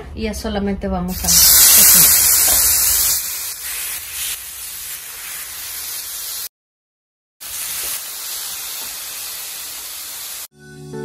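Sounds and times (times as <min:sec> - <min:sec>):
meat sizzling on a griddle: 0:01.2 - 0:06.5, 0:07.4 - 0:10.5.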